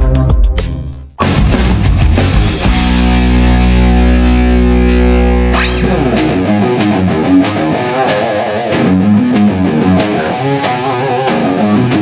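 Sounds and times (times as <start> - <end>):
guitar music over a steady beat: 0.0 - 12.0.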